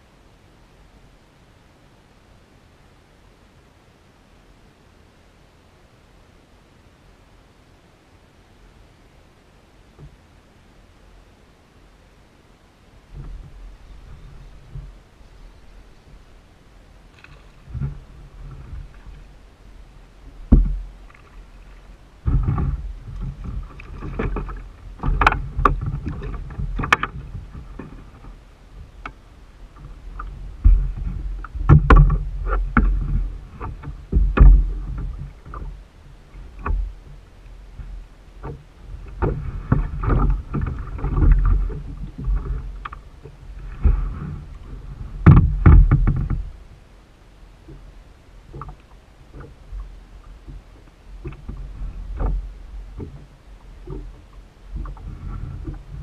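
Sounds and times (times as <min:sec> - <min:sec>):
knocks and rubbing on kayak hull: 0:13.1 - 0:15.1, 0:17.1 - 0:46.8, 0:48.5 - 0:56.0.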